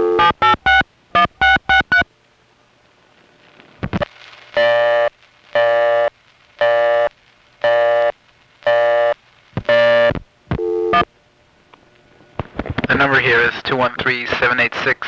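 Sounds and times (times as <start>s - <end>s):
telephone busy signal: 0.0s - 2.0s, 4.6s - 8.1s, 8.7s - 11.1s.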